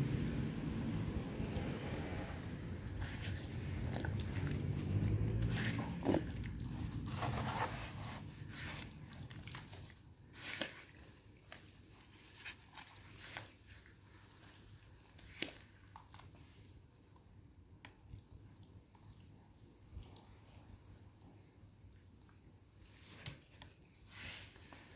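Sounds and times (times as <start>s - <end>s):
boot squelching in wet mud: 2.9s - 11.2s.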